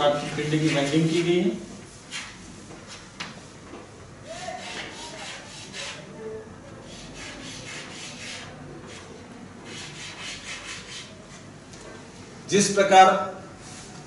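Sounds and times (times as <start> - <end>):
chalk scraping on blackboard: 0.0 - 3.0, 4.4 - 6.1, 6.8 - 11.4.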